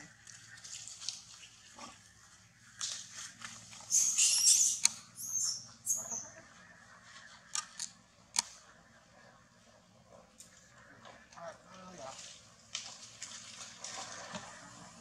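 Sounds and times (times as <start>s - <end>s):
monkeys shrieking squeals: 3.9s - 6.3s.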